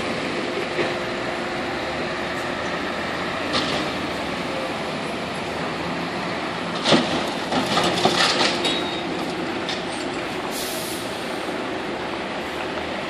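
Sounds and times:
diesel truck engine running: 0:00.0 - 0:13.0
air brake hiss: 0:10.5 - 0:11.5.

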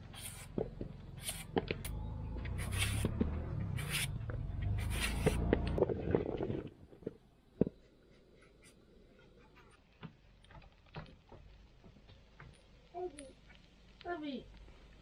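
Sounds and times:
knife rasping through vegetable: 0:00.0 - 0:00.6, 0:01.2 - 0:01.5, 0:02.6 - 0:03.1, 0:03.8 - 0:04.1, 0:04.7 - 0:05.5
low rumble: 0:00.9 - 0:07.0.

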